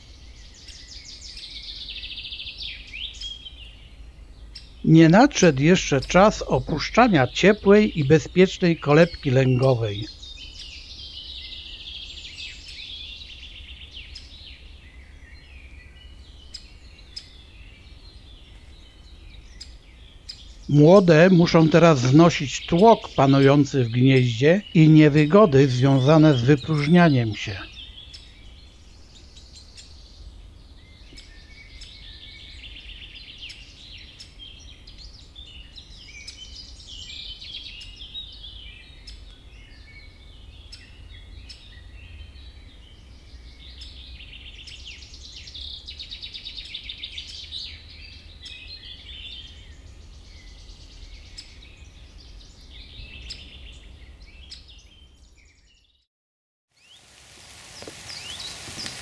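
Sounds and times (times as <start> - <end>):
nestlings chirping and trilling: 4.4 - 11.2, 57.6 - 59.0.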